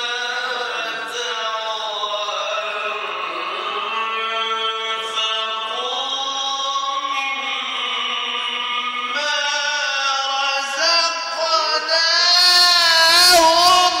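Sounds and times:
man chanting into microphone: 0.0s - 14.0s.

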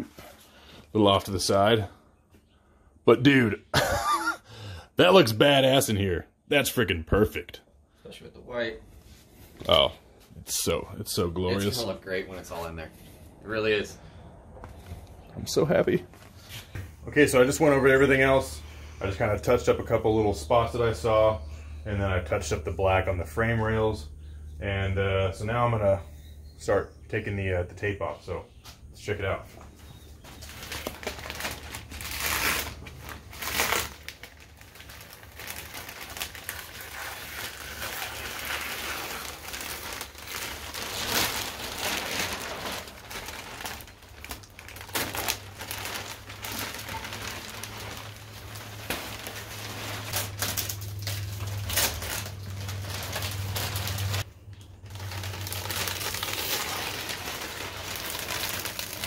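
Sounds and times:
plastic film crinkling and peeling: 29.8s - 59.0s
low steady hum: 36.9s - 56.2s.

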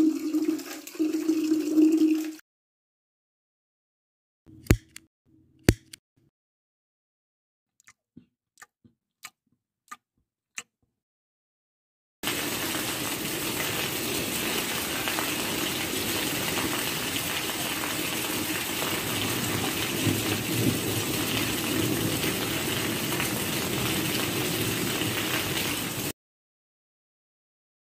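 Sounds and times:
steady rain: 12.2s - 26.1s.

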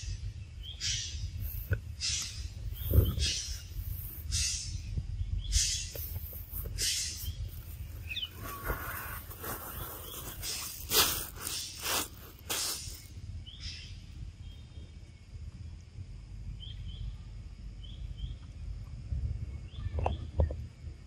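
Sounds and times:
faint bird chirps: 0.0s - 11.6s
steady low rumble: 0.0s - 21.0s
short rustling: 6.0s - 13.1s.

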